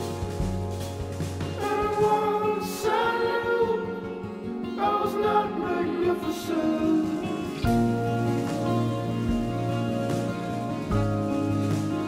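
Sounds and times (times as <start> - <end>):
choir-like singing voices: 1.6 - 7.8.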